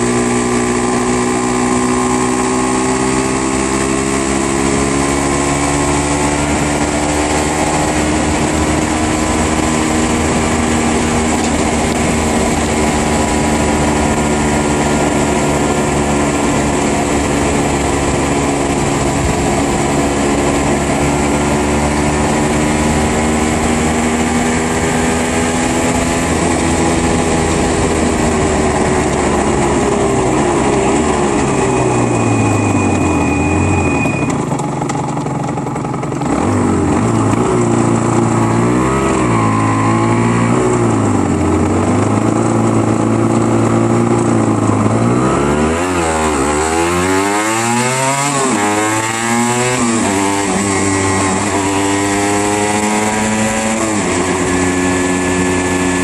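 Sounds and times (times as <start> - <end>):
wind noise: 0.0 - 34.4
two-stroke motorcycle engine: 0.0 - 56.0.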